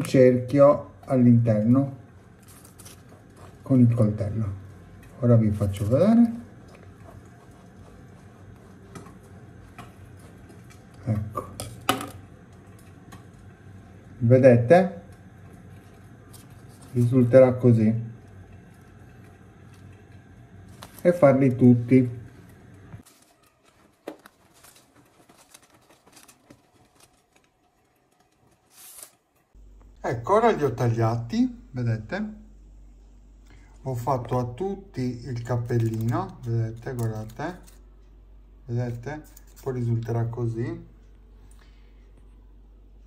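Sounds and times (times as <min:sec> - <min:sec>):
knife scratching cake: 0:01.5 - 0:04.4, 0:05.0 - 0:11.8
paper cup crinkling: 0:02.3 - 0:04.0, 0:15.4 - 0:17.4, 0:22.3 - 0:29.4, 0:35.4 - 0:37.8.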